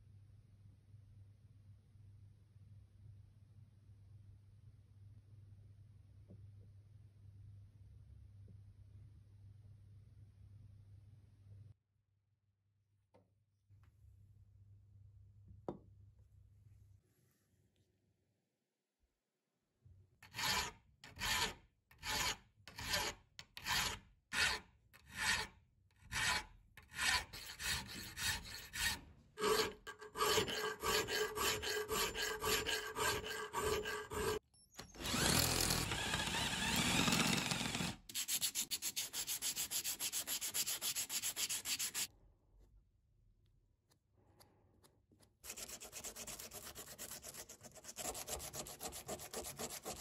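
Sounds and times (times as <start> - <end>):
hand file rasping on metal: 20.2 - 34.4, 38.1 - 42.1, 45.4 - 50.0.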